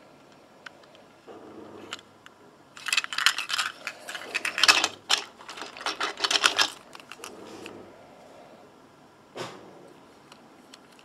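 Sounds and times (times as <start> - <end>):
toy gears whirring and clicking: 2.8 - 7.3.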